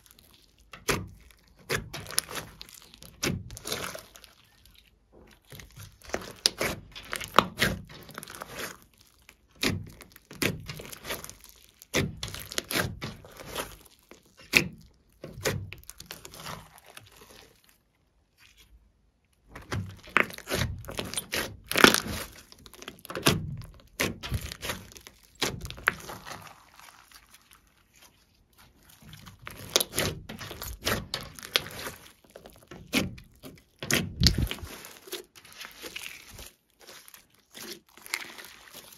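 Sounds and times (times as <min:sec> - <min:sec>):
slime squelching and popping: 0:00.0 - 0:38.9.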